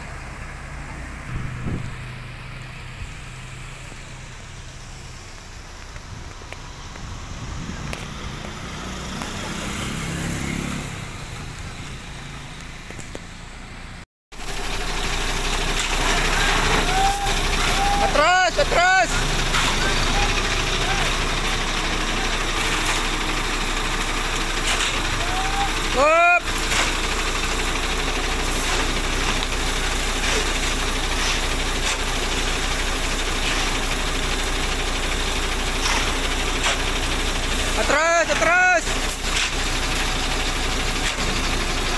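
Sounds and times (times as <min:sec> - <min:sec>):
vehicle engine passing: 0:00.0 - 0:25.9
steady road noise: 0:00.0 - 0:41.9
concrete pouring down chute: 0:14.5 - 0:41.9.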